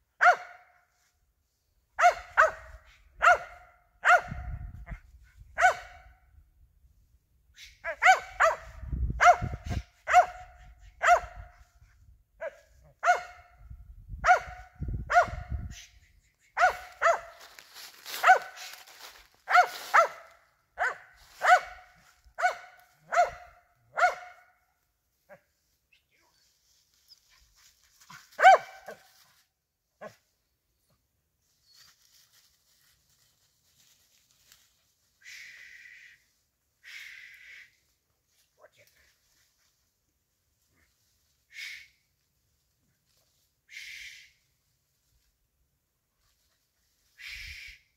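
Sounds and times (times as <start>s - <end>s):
dog barking sharply: 0.2s - 0.6s, 2.0s - 4.5s, 5.6s - 6.1s, 7.8s - 11.4s, 12.4s - 13.5s, 14.2s - 15.6s, 16.6s - 17.4s, 18.2s - 18.6s, 19.5s - 24.4s, 28.4s - 29.0s.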